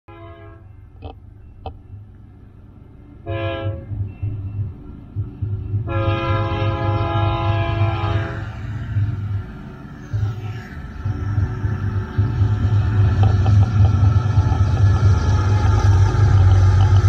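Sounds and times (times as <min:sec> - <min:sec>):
train air horn blasts: 0:00.1 - 0:00.7, 0:03.2 - 0:03.9, 0:05.8 - 0:08.7
train low rumble: 0:00.1 - 0:17.0.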